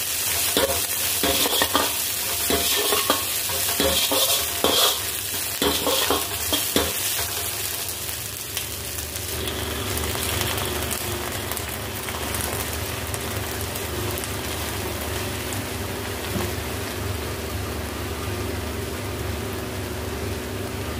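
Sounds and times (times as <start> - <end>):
food sizzling in wok: 0.0 - 20.9
metal ladle scraping wok: 0.2 - 8.0.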